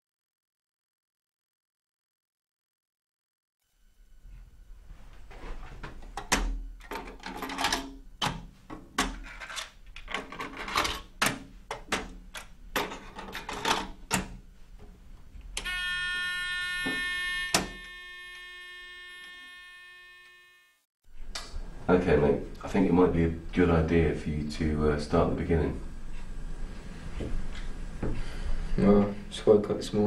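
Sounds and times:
loud buzzing beep: 0:15.6 - 0:20.8.

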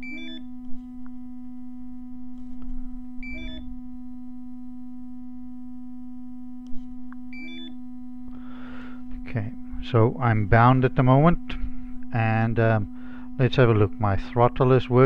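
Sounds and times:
electronic beep sequence: 0:00.0 - 0:00.5, 0:03.2 - 0:03.7, 0:07.4 - 0:07.8
low electronic hum: 0:00.0 - 0:15.0.

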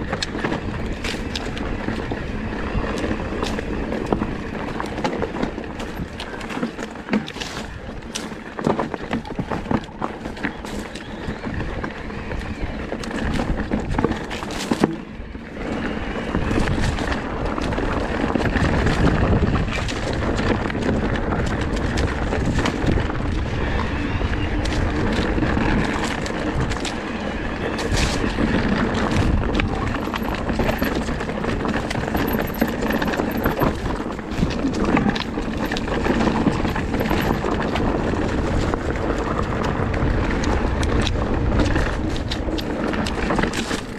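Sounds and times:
tyres rolling over stones: 0:00.0 - 0:43.9
bike clattering and knocking: 0:27.9 - 0:43.9.

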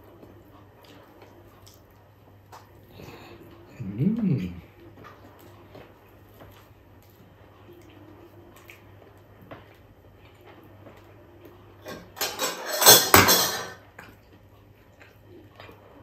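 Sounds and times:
faint eating clicks: 0:00.0 - 0:11.6
metal ladle clattering on cookware: 0:11.8 - 0:13.8.

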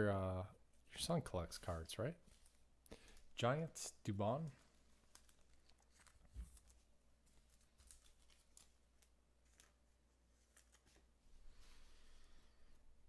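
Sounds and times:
cards rustling: 0:04.4 - 0:11.1
trading cards being handled: 0:04.4 - 0:11.2.

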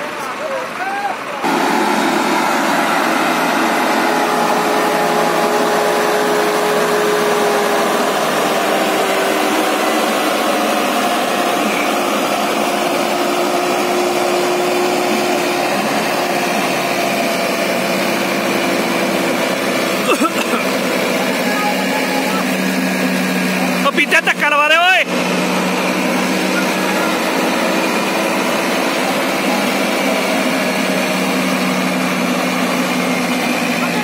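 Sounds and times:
tractor diesel engine running: 0:00.0 - 0:34.0.

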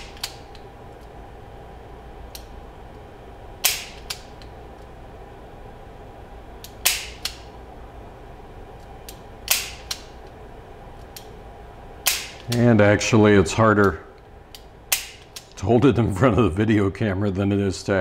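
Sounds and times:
revolver hammer snapping: 0:00.0 - 0:01.1, 0:03.6 - 0:04.5, 0:06.6 - 0:07.5, 0:08.8 - 0:10.3, 0:12.0 - 0:12.7, 0:13.8 - 0:15.6.

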